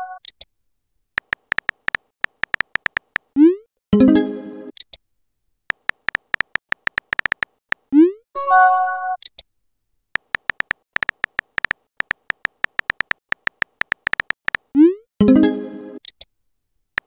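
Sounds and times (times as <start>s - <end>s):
keyboard tap clicks: 1.2s - 3.3s, 5.7s - 7.8s, 10.2s - 14.6s.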